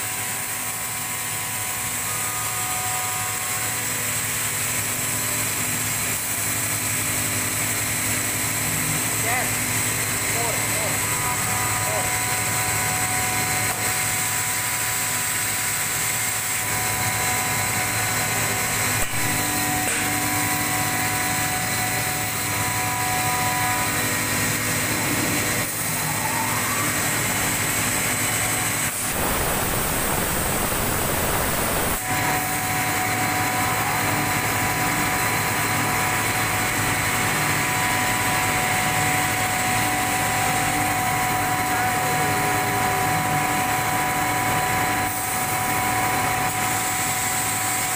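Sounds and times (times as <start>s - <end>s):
exhaust fan motor humming: 10.8s - 39.4s.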